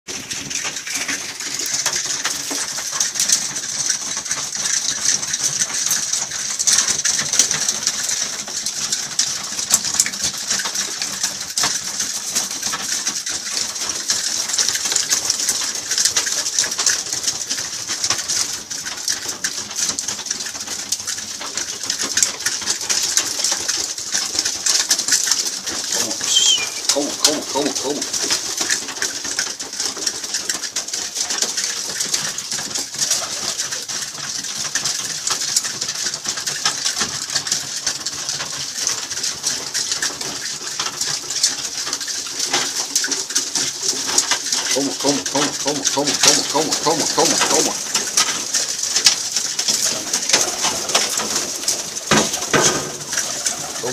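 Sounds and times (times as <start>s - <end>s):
pigeons cooing: 25.8s - 28.8s, 44.0s - 48.7s, 49.8s - 53.9s.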